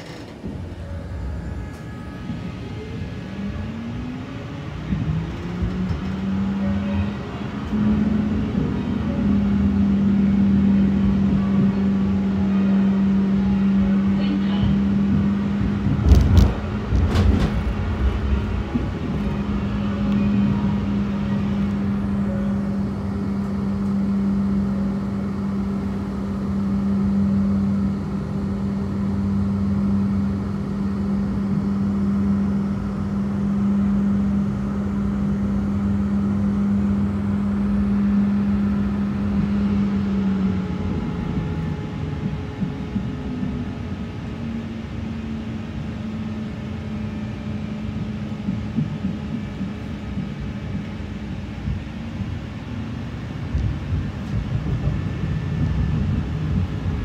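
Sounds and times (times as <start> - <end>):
tram motor hum: 0.0 - 57.0
tram rumbling: 0.0 - 57.0.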